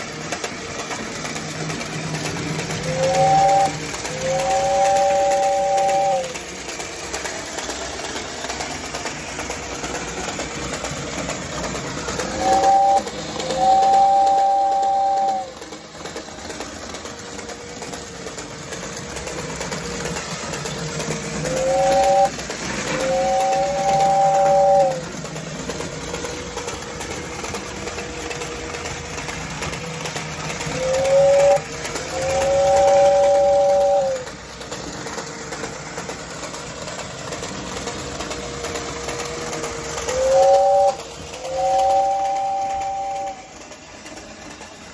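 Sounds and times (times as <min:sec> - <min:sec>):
two-tone toy train whistle: 0:00.0 - 0:08.2, 0:11.6 - 0:35.2, 0:37.5 - 0:44.9
toy locomotive puffing hiss: 0:00.0 - 0:44.9.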